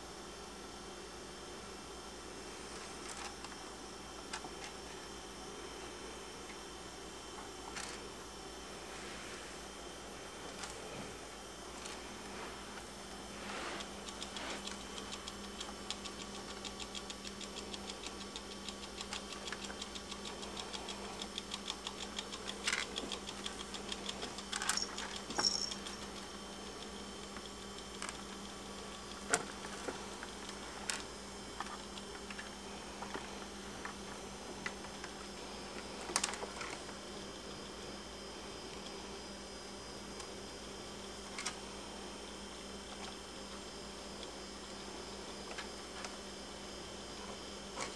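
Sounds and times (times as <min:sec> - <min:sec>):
steady low hum: 0:00.0 - 0:47.9
rats clicking and scratching: 0:07.7 - 0:08.1, 0:11.7 - 0:37.0.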